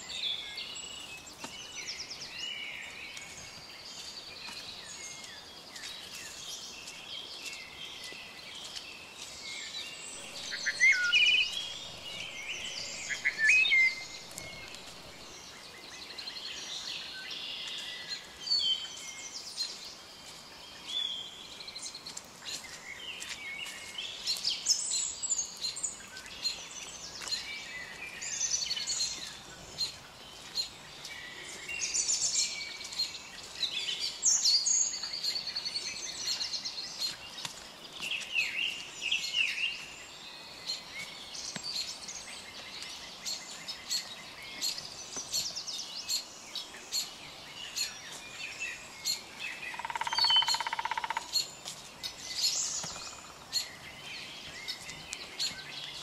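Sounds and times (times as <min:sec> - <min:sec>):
songbirds singing and chirping: 0:00.0 - 0:56.0
footsteps on dry leaves: 0:02.3 - 0:15.8, 0:21.9 - 0:24.9.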